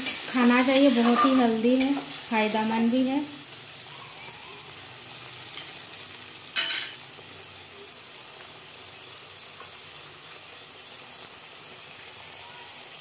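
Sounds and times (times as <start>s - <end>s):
paste sizzling in hot oil: 0.0s - 13.0s
metal spatula clattering on pan: 6.6s - 7.0s.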